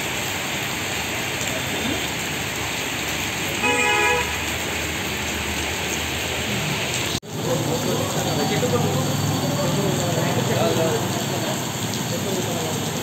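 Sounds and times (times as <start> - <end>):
heavy rain on street: 0.0 - 13.0
vehicle horn toot: 3.6 - 4.5.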